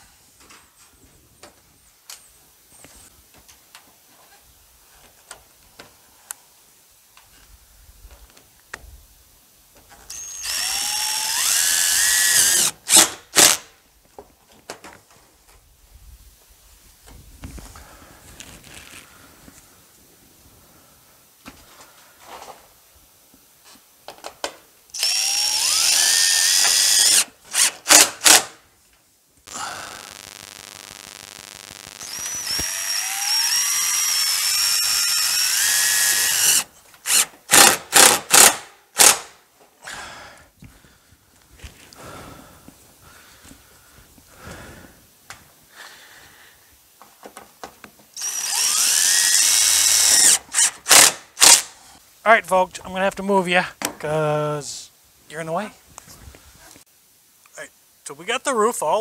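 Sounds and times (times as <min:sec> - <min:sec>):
cordless drill driving screws: 0:10.1 - 0:13.6, 0:24.9 - 0:28.6, 0:31.9 - 0:39.3, 0:48.2 - 0:51.6.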